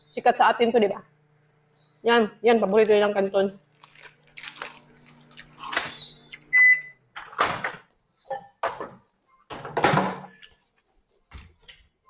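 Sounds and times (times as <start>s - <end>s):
appliance hum: 0.0s - 12.0s.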